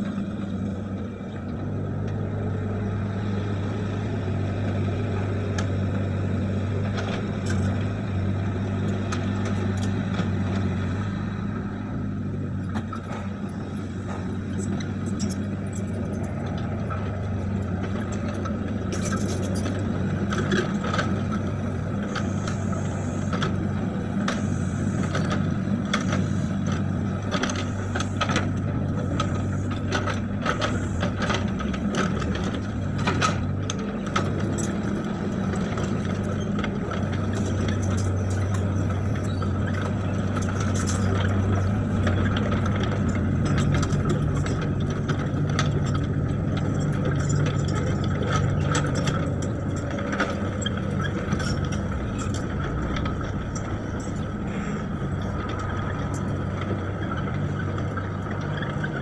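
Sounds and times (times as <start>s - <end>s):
excavator diesel engine running: 0.0s - 59.0s
metallic clanks and rattles: 12.6s - 21.4s, 24.2s - 59.0s.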